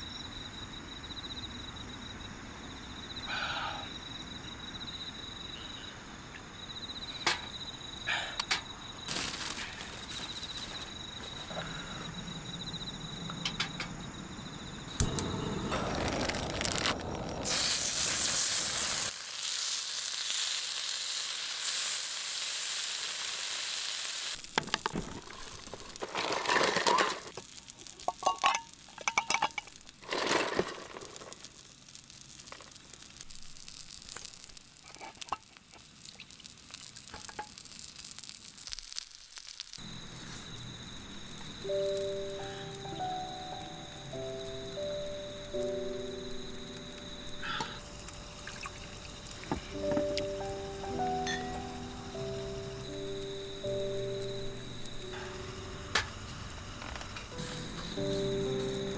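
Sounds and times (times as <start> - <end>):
crickets chirping: 0.0 - 38.0, 39.6 - 58.9
dumplings sizzling on griddle: 6.7 - 12.1, 15.0 - 43.3.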